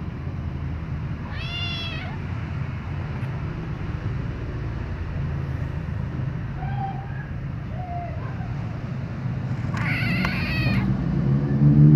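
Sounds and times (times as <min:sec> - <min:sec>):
kitten meowing: 0:01.2 - 0:02.3, 0:09.7 - 0:10.9.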